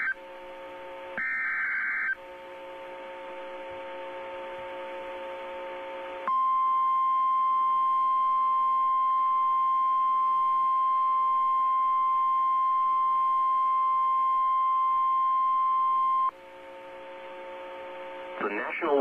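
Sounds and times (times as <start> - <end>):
faint radio hum: 16.0 - 19.0.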